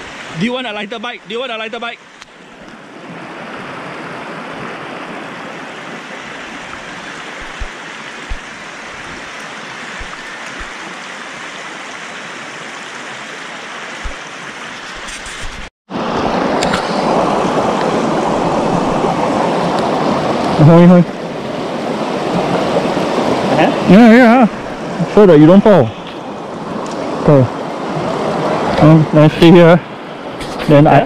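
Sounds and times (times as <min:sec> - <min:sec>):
river water rushing: 0:00.0 - 0:31.0
soft thumps: 0:07.4 - 0:07.7, 0:08.3 - 0:09.2.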